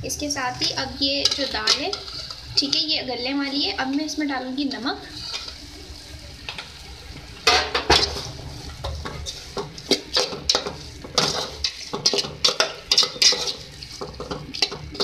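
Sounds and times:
spoons stirring in metal pot: 0.5 - 5.8, 7.4 - 15.0
spoons clinking against pot: 9.6 - 15.0.

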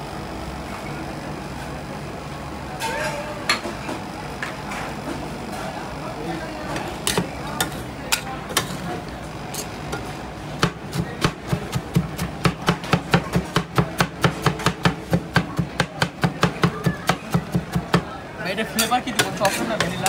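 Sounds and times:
steel spatulas chopping on steel: 7.0 - 8.8, 9.5 - 18.0, 18.7 - 20.0.

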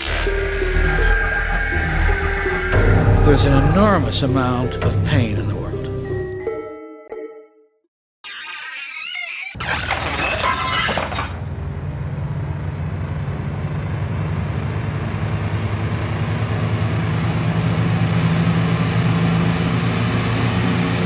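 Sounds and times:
low rumbling drone: 0.0 - 6.0.

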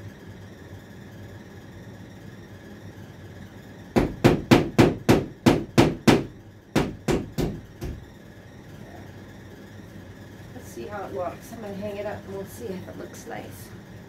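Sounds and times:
hammer driving a nail: 4.0 - 8.0.

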